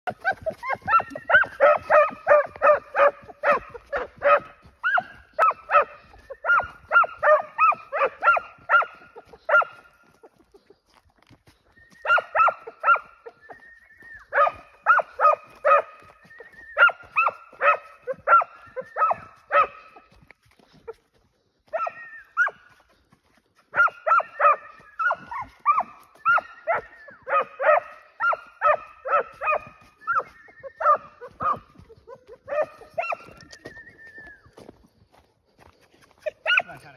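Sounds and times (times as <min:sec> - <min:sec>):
dog barking: 0:00.2 - 0:10.0, 0:12.0 - 0:13.2, 0:14.3 - 0:16.1, 0:16.8 - 0:20.1, 0:21.7 - 0:22.6, 0:23.7 - 0:33.3, 0:36.2 - 0:36.9.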